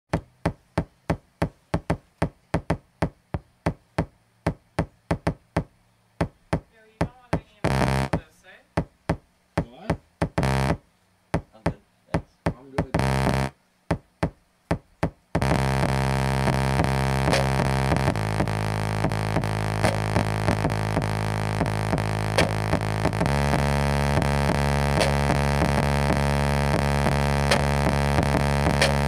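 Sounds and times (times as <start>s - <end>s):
steady drone: 15.5s - 29.0s.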